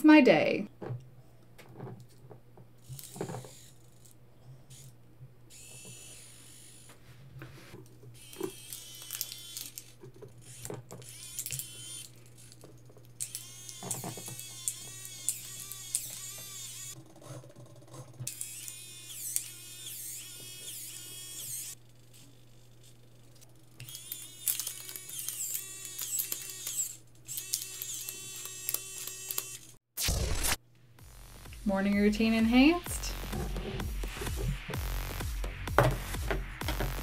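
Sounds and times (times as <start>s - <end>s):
servo motor whining: 2.8s - 7.1s, 8.1s - 12.6s, 13.2s - 17.2s, 17.9s - 30.6s.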